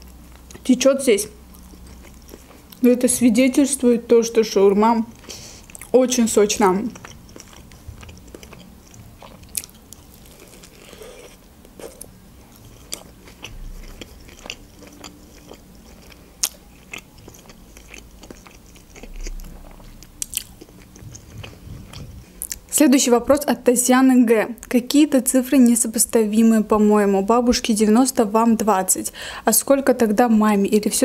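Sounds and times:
person chewing food: 0:01.4 - 0:02.8, 0:05.1 - 0:06.0, 0:06.6 - 0:22.7.

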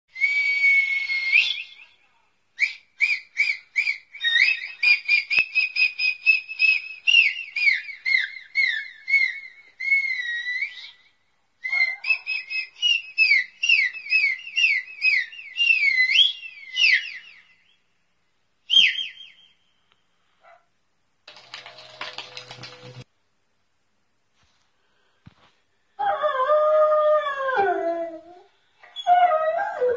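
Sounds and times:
dog whines and squeals from speaker: 0:11.6 - 0:12.7, 0:26.0 - 0:29.9.

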